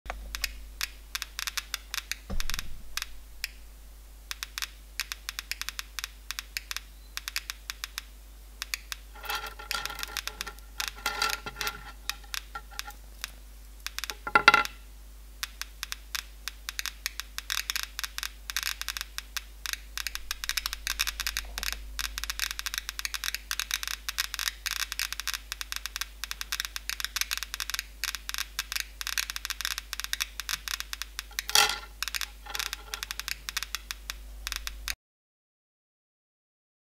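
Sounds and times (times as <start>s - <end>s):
metal rods clinking on metal case: 9.2s - 13.0s, 31.3s - 33.2s
geiger counter clicking: 19.6s - 35.0s.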